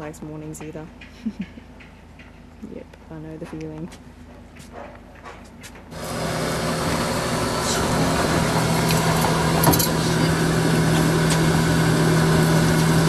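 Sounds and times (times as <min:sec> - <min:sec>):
boat engine hum: 0:05.9 - 0:13.0.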